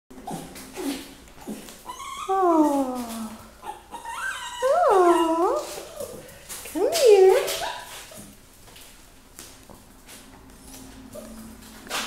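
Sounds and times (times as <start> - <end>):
puppy whining: 0.2 - 6.4, 7.3 - 8.4, 10.7 - 12.0.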